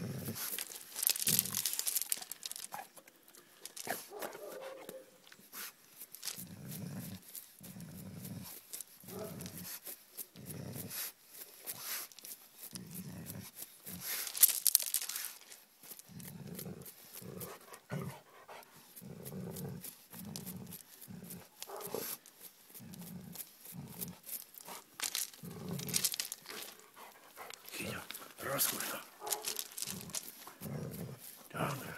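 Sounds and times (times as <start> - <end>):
paws crunching on gravel: 0.2 - 2.9, 3.6 - 4.7, 5.6 - 6.6, 11.7 - 16.0, 19.7 - 31.9
dog growling: 16.1 - 18.2, 19.0 - 31.9.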